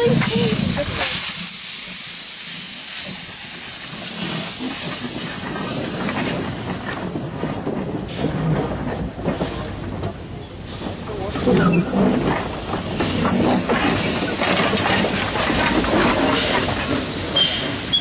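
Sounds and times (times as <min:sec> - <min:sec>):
steam hissing from locomotive: 0:00.0 - 0:18.0
train wheels knocking: 0:04.1 - 0:18.0.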